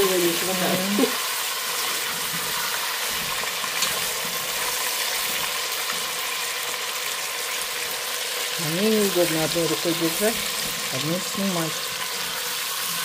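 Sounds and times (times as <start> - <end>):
meat sizzling in hot oil: 0.0 - 13.0.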